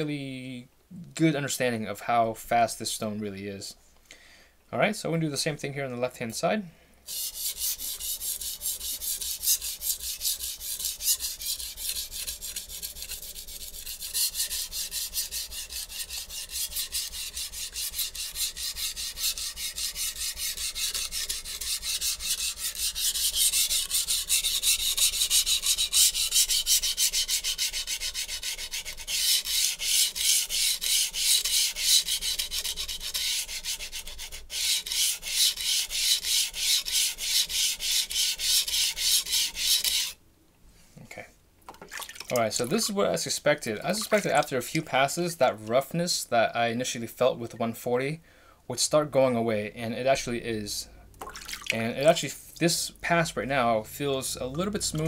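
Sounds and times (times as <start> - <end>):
knife scraping on whetstone: 7.1 - 40.2, 43.8 - 44.5.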